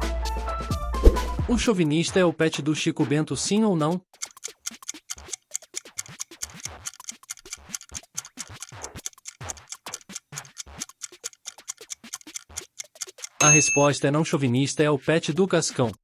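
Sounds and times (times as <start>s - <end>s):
clock-like ticks: 3.5s - 16.0s.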